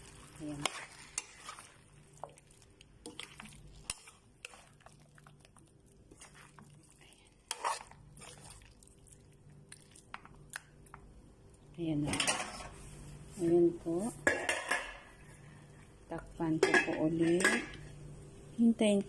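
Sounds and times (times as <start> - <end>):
metal spoon scraping a frying pan: 0.5 - 1.8, 7.5 - 8.4.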